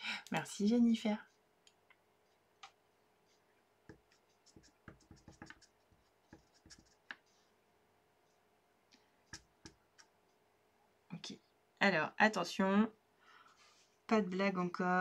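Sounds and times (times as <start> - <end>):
stamp block tapping on ink pad: 4.6 - 5.6.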